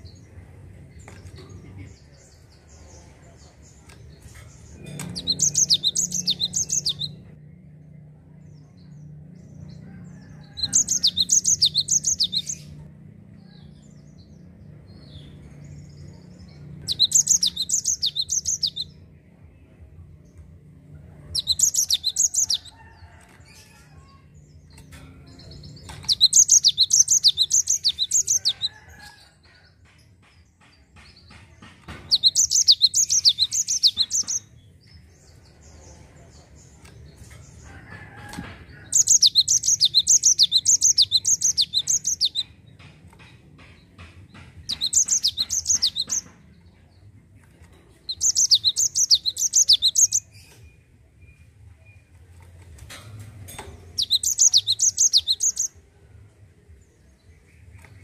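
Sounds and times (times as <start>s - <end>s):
bird singing rolling song: 0.0s - 29.6s, 30.2s - 37.9s, 38.7s - 58.0s.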